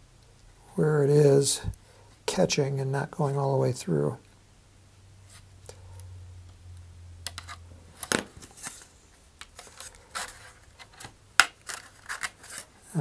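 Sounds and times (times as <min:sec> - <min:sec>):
small clicks and scratches: 0:07.2 - 0:12.7.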